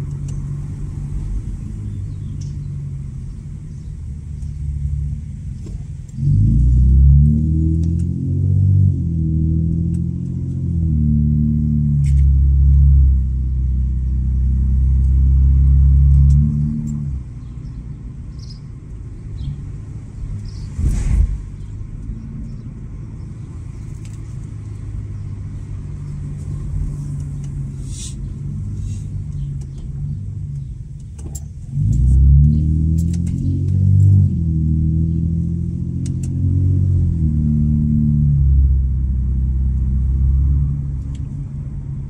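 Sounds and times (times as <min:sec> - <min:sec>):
car exhaust drone: 0:00.0 - 0:42.0
brief thump: 0:20.7 - 0:21.6.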